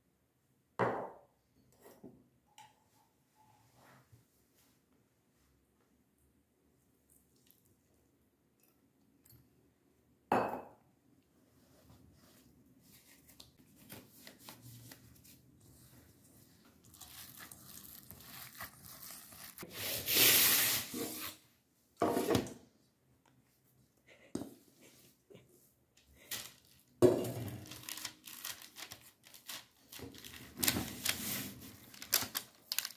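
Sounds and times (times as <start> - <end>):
hand mixing crumbly mixture: 15.1 - 20.1, 27.6 - 32.9.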